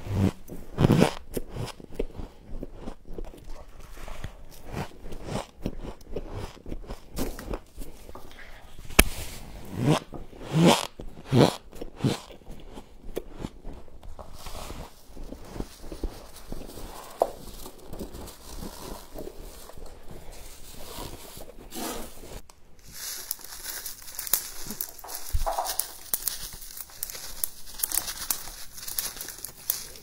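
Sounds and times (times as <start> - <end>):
plastic scraper scraping frost: 0.0 - 1.7, 14.2 - 30.0.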